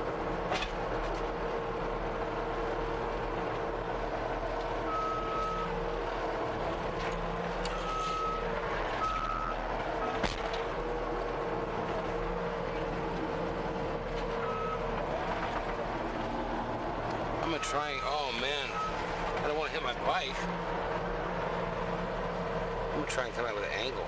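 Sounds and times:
skid steer engine running: 0.0 - 24.0
reverse alarm beeps: 7.7 - 8.4.

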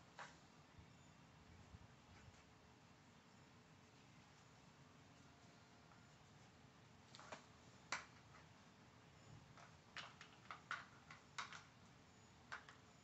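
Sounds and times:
plastic treat puzzle clicking: 9.6 - 11.7, 12.5 - 12.9.

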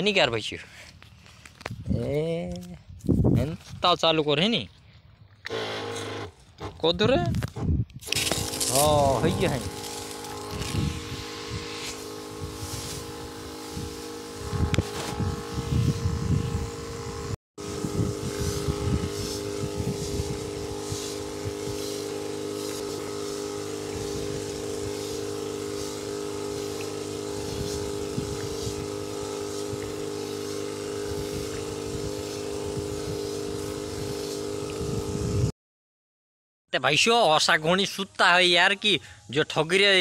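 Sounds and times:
wind rumble on microphone: 1.6 - 3.8, 6.9 - 9.7, 10.5 - 11.7, 13.8 - 21.9, 27.4 - 29.0, 31.1 - 35.5
sprayer pump humming: 5.4 - 6.8, 8.0 - 35.5.

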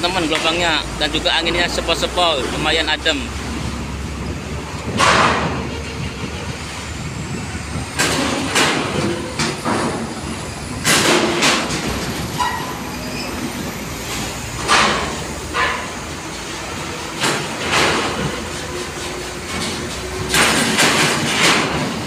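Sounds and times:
truck engines rumbling: 0.0 - 22.0
metallic clanks on steel ramp: 4.8 - 6.7, 7.9 - 22.0.

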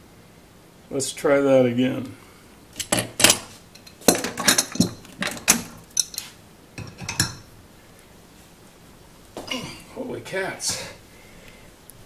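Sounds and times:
metal tools clanking: 2.8 - 7.5.

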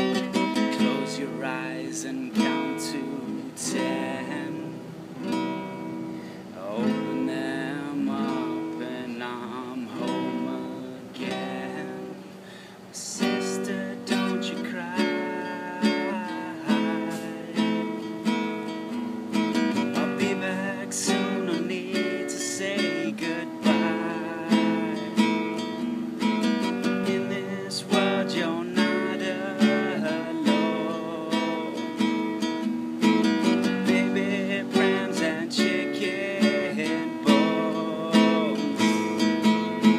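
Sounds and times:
classical guitar playing: 0.0 - 39.9.

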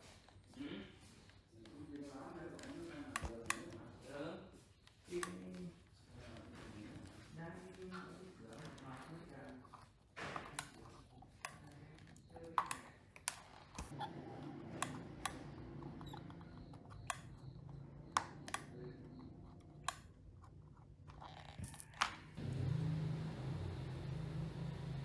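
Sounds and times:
faint low hum: 5.2 - 25.0
sharp clicks and light taps: 10.2 - 20.8.

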